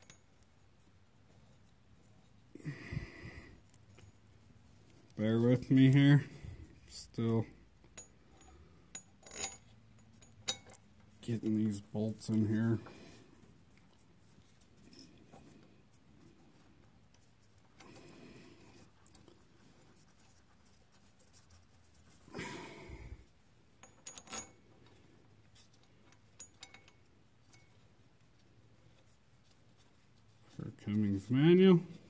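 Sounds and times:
metallic clinks of bolts and tools: 0.0s - 0.5s, 5.6s - 12.4s, 23.8s - 25.0s, 25.6s - 27.8s.

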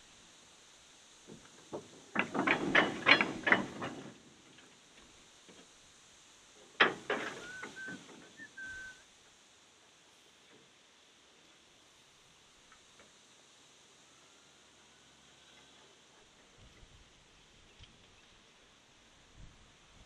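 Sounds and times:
goods wagons clanking: 1.4s - 5.7s, 6.6s - 9.0s
brief high squeal: 7.4s - 9.0s.

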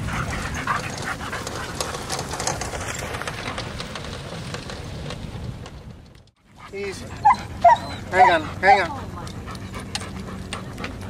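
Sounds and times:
huskies yipping and whining: 6.7s - 11.0s.

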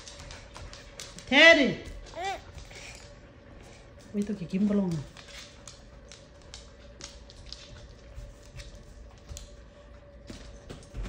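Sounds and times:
clicks and taps on hardwood floor: 0.0s - 2.8s.

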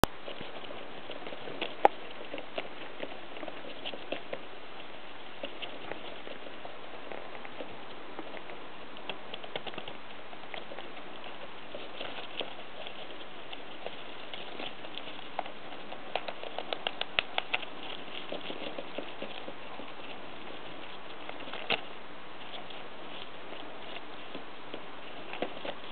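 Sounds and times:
rodent gnawing and scrabbling: 0.0s - 25.9s.

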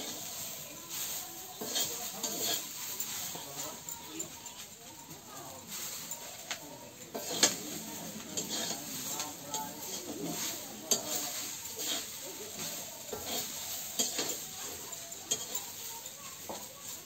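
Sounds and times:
leaves sizzling: 0.0s - 17.0s
spatula scraping wok: 0.0s - 17.0s
spatula clinking against pan: 1.4s - 4.6s, 7.0s - 17.0s.

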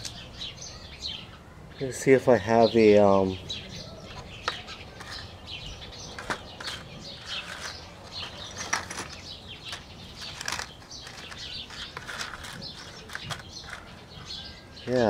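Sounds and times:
small electronic parts clicking: 6.2s - 13.9s.

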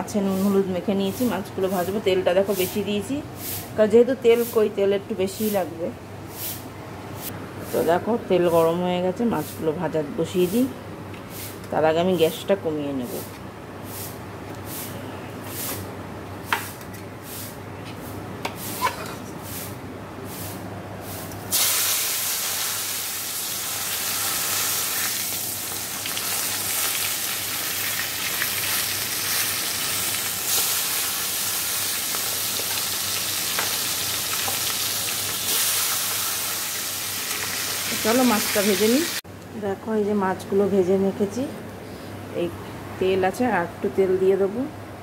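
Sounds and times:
fish sizzling in hot oil: 21.5s - 39.2s.

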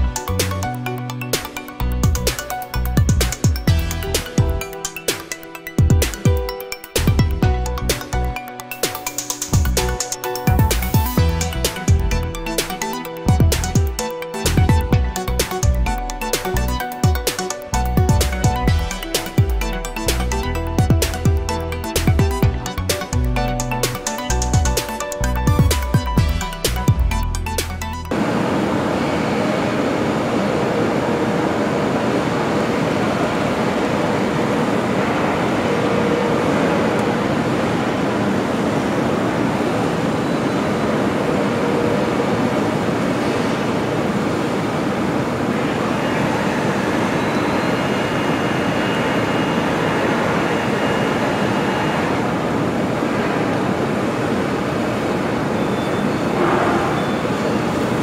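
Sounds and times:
music: 0.0s - 28.2s
industrial machinery rumble and hiss: 27.8s - 58.0s
faint high whine: 28.1s - 58.0s.

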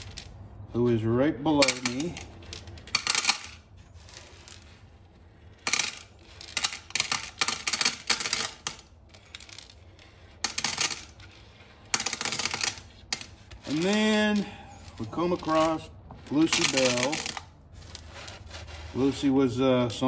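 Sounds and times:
metal nuts clinking: 1.6s - 4.6s, 5.6s - 18.0s.

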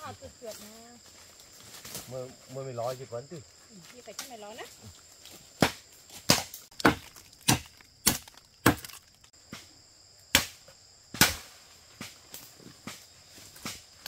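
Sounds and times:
insect chorus: 0.0s - 14.0s
hand tool striking wood: 5.6s - 9.6s.

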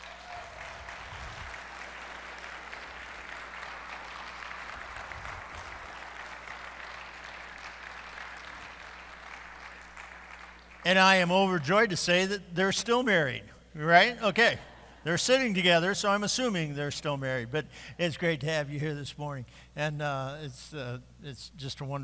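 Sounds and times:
congregation applauding: 0.0s - 11.7s.

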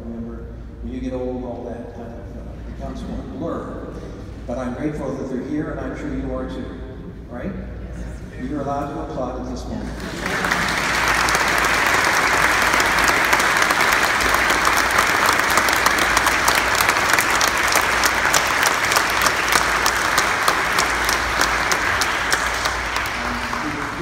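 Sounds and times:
congregation applauding: 9.9s - 24.0s.

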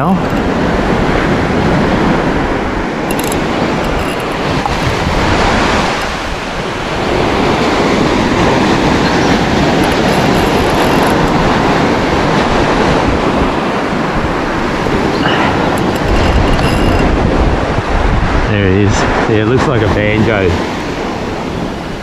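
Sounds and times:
surf rushing: 0.0s - 22.0s
wind buffeting microphone: 0.0s - 22.0s.

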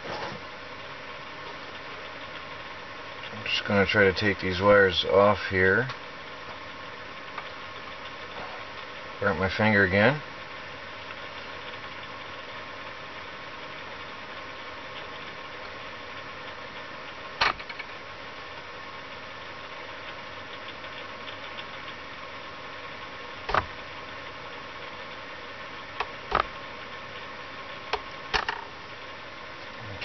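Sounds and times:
faint whine: 0.0s - 30.0s
steady background hum: 0.0s - 30.0s.

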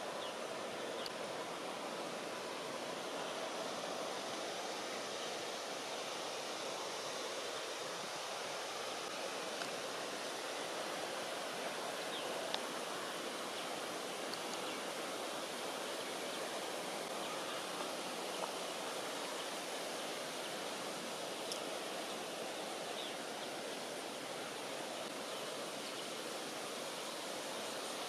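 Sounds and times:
outdoor background hiss: 0.0s - 28.0s
faint high ticks: 12.5s - 12.7s.

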